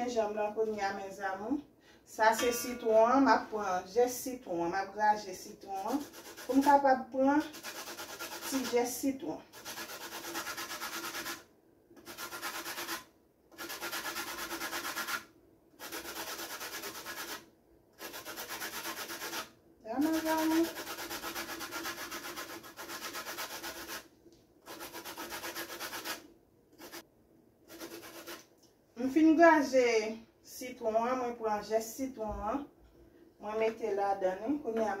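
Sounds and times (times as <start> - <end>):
lime rasping on metal grater: 5.7 - 6.8, 7.4 - 8.8, 9.5 - 11.4, 12.0 - 13.0, 13.6 - 15.2, 15.8 - 17.4, 18.0 - 24.0, 24.7 - 26.2, 26.8 - 27.0, 27.7 - 28.4.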